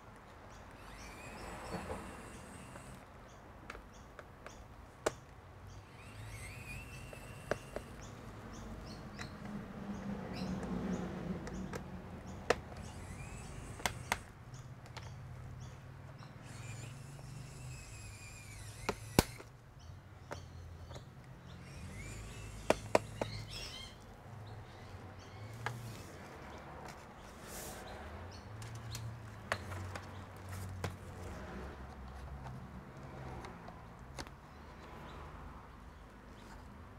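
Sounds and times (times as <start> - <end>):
plastic clips popping loose: 11.4 - 15.2, 18.6 - 19.5.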